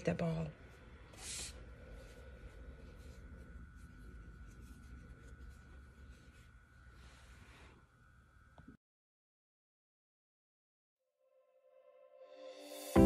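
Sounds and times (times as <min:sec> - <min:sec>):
wool rustling and rubbing: 0:00.7 - 0:07.8.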